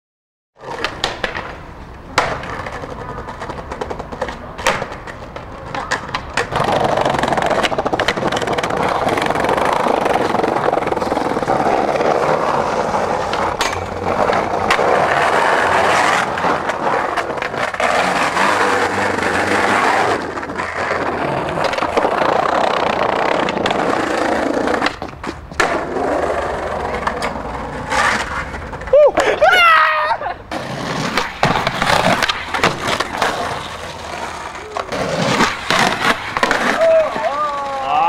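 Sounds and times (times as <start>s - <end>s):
skateboard knocks: 0.6s - 12.6s
skateboard wheels rolling on pavement: 0.6s - 38.0s.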